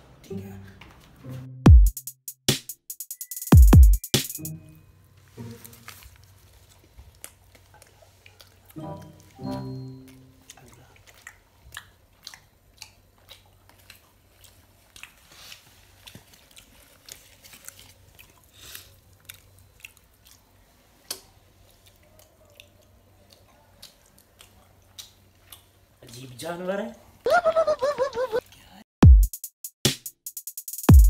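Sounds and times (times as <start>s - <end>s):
person chewing: 5.7s - 9.4s, 10.0s - 25.8s
wet mouth smacks and clicks: 23.8s - 25.7s.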